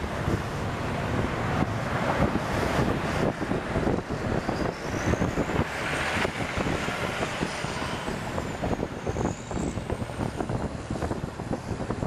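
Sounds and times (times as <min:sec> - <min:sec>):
wind buffeting microphone: 0:00.0 - 0:12.0
faint high squeal: 0:07.4 - 0:10.0.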